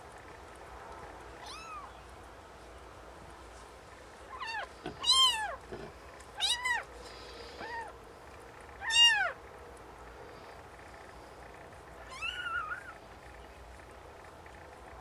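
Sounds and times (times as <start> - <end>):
newborn kitten mewing: 4.3 - 5.6, 7.6 - 7.9, 8.8 - 9.4.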